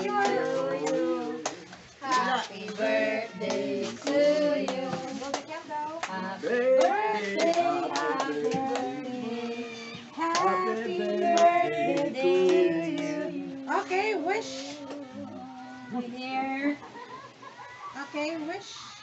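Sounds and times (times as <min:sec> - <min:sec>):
voices singing together: 0:00.0 - 0:16.1
hand claps: 0:06.8 - 0:09.0, 0:10.3 - 0:10.6.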